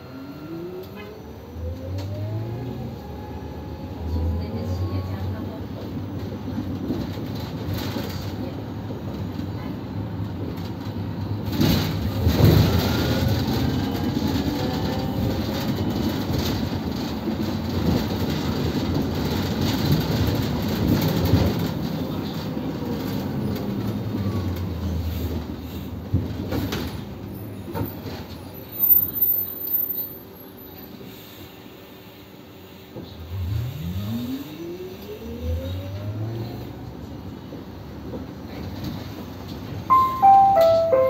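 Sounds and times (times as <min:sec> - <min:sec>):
electric motor whine: 0:00.0 - 0:04.9, 0:33.3 - 0:35.8
bus road and running noise: 0:00.0 - 0:41.0.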